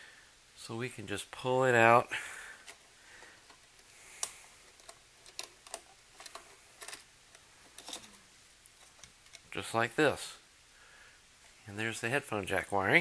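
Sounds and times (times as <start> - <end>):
wires clicking against metal parts: 2.6 - 9.7.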